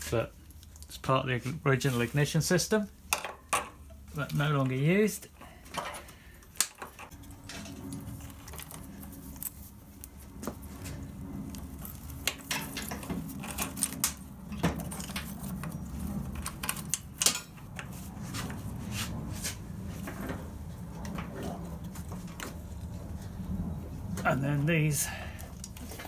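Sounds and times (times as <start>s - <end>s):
steady low hum: 0.0s - 26.0s
wiring connectors clicking and rattling: 3.1s - 17.9s, 25.4s - 26.0s.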